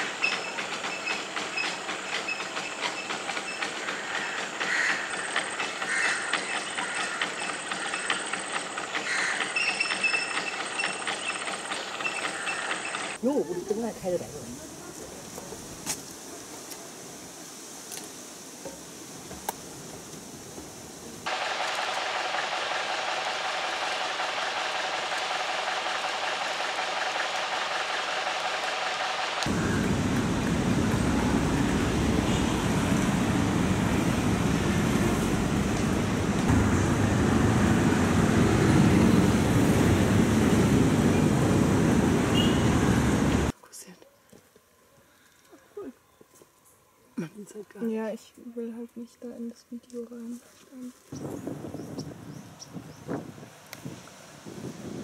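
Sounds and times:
high rattling insect drone: 0:00.0 - 0:13.2, 0:19.7 - 0:32.5
insect clicking chorus: 0:01.4 - 0:13.2.

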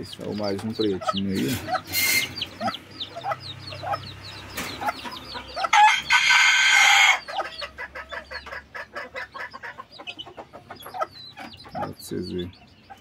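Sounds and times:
chicks peeping: 0:00.0 - 0:13.0
rooster crowing: 0:05.7 - 0:07.3.

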